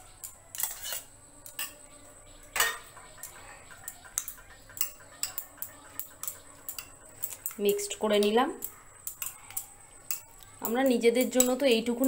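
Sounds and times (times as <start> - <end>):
metal spoon scraping steel bowl: 0.5 - 1.8, 2.6 - 10.4.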